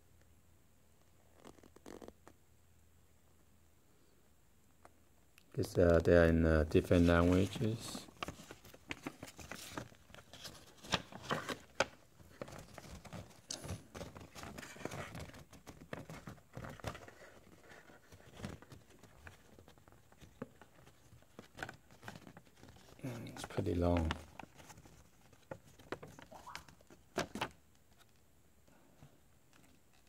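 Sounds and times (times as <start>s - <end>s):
paper rustling: 6.8s - 28.2s.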